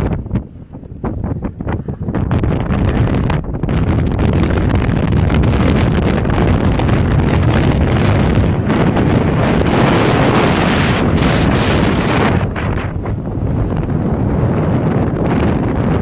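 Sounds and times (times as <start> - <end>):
strong wind on microphone: 0.0 - 16.0.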